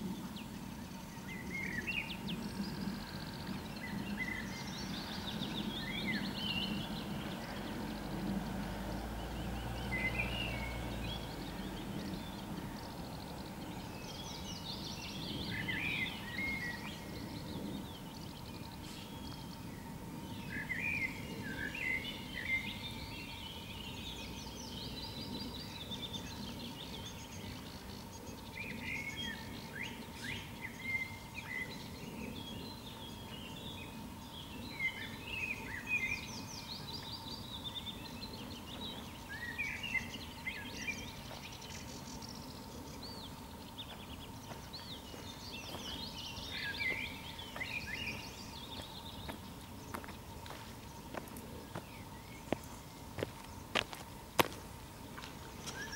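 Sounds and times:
low background rumble: 0:00.0 - 0:35.7
songbirds singing: 0:00.0 - 0:55.9.

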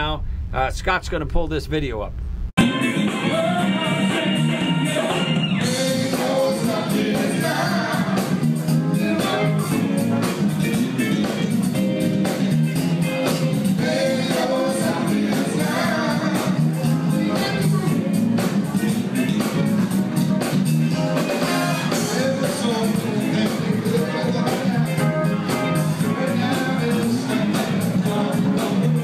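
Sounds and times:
drums: 0:00.0 - 0:29.0
man singing: 0:02.6 - 0:11.6, 0:13.8 - 0:18.0, 0:18.6 - 0:19.7, 0:21.7 - 0:29.0
electric guitar: 0:02.6 - 0:29.0.

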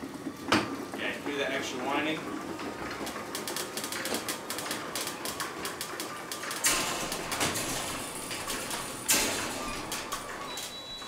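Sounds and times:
garage door opener rattling: 0:02.2 - 0:11.0
loud clatters: 0:02.6 - 0:10.6.

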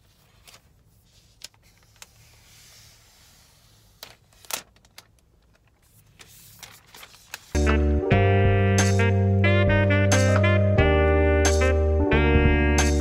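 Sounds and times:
soft rustle: 0:00.0 - 0:07.6.

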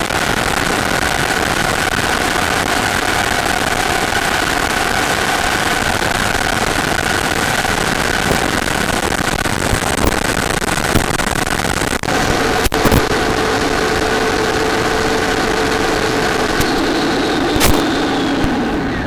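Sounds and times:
sharp clicks and crackles: 0:00.0 - 0:19.0
faint motor whine: 0:12.1 - 0:19.0.

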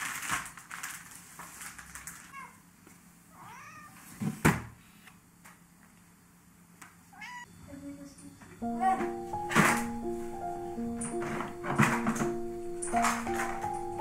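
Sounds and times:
cat meowing: 0:03.3 - 0:04.0, 0:07.1 - 0:07.5
soft music: 0:07.7 - 0:14.0.

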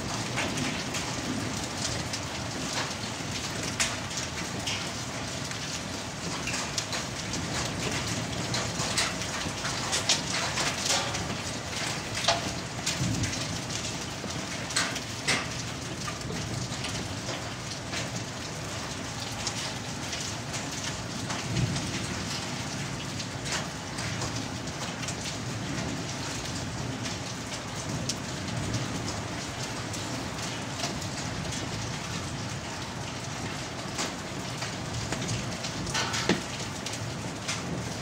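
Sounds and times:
hailstones clicking on surfaces: 0:00.0 - 0:38.0.

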